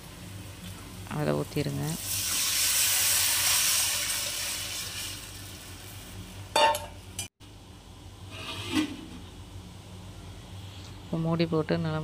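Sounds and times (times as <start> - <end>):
liquid sizzling in hot oil: 0.0 - 7.3
metal lid clanking on pot: 6.5 - 7.3.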